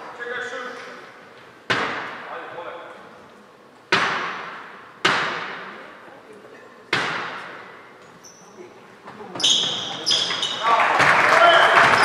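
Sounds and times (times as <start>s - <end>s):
basketball bouncing on gym floor: 6.9s - 7.7s, 9.1s - 11.2s.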